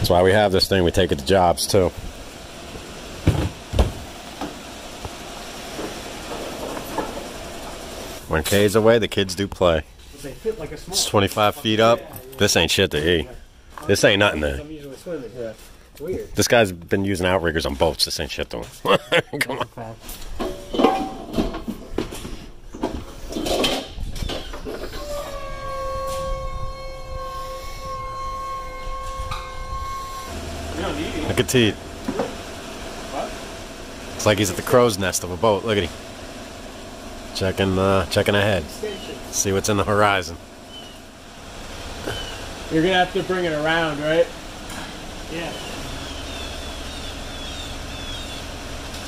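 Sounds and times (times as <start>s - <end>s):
steady rumble: 0.0s - 11.8s, 26.4s - 49.0s
lift motor whine: 24.0s - 49.0s.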